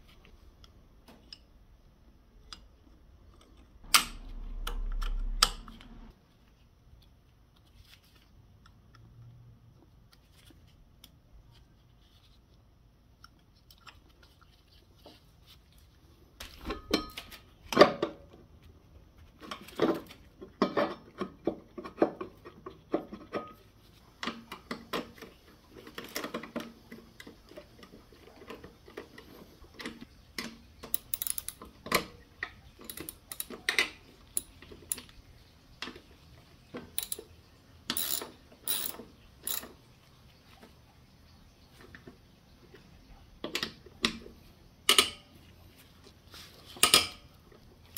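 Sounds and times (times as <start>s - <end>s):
hand tools clicking on metal: 30.8s - 32.0s, 32.8s - 35.1s, 37.0s - 37.2s, 37.9s - 39.7s.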